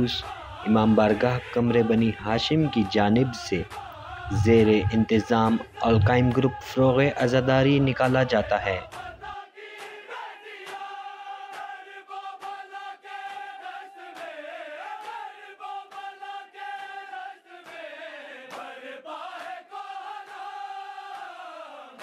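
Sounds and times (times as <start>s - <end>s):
sharp rhythmic beats: 0.0s - 9.4s
men chanting a lament: 0.0s - 22.0s.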